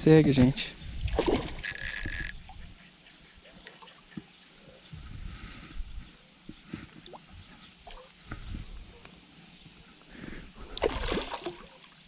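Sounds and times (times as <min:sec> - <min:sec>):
wind rumbling on microphone: 0:00.8 - 0:02.8
faint high ticks: 0:01.6 - 0:02.4
water splashing and dripping: 0:10.7 - 0:12.0.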